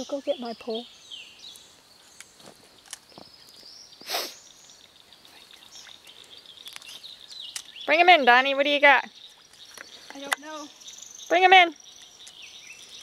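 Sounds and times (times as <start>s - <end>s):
short bird chirps: 3.1s - 7.9s.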